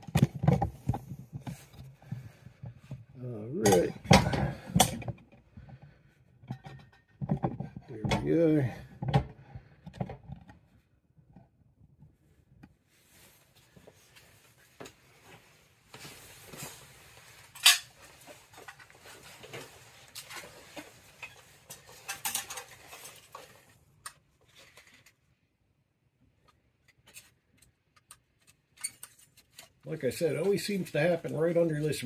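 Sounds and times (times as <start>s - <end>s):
small parts rustling: 16.0s - 25.4s, 26.4s - 32.0s.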